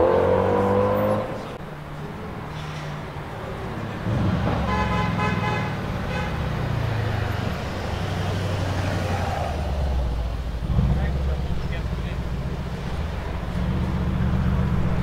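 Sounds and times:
car horn: 4.5 - 6.7.

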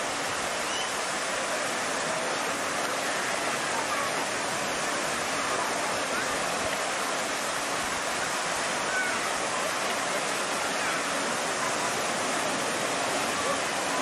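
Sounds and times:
waterfall rushing into pool: 0.0 - 14.0.

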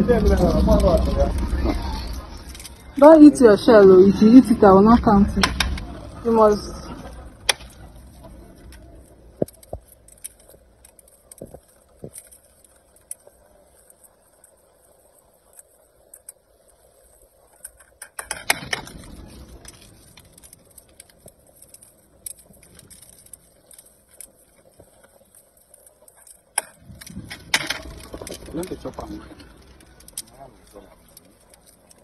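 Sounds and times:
eggshells crackling as peeled: 0.0 - 32.0.

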